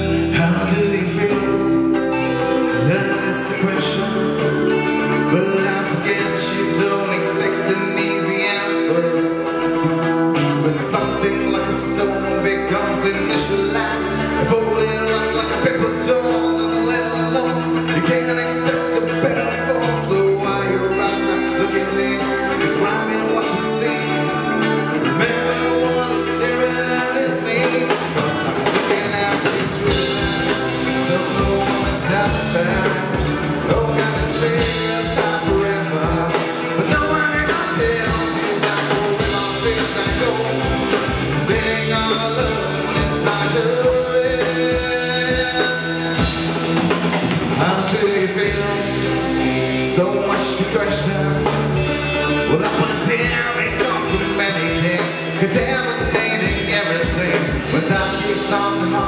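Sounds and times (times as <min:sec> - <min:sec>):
electric bass: 0:00.0 - 0:59.0
electric guitars: 0:00.0 - 0:59.0
drum kit beat: 0:27.6 - 0:59.0.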